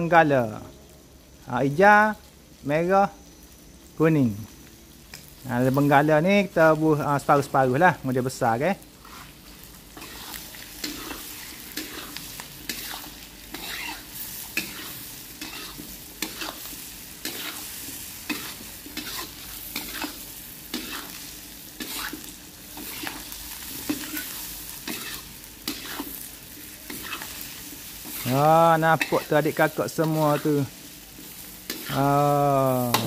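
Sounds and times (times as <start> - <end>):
food sizzling in a wok: 0.0 - 33.0
metal spatula scraping a pan: 8.9 - 32.0.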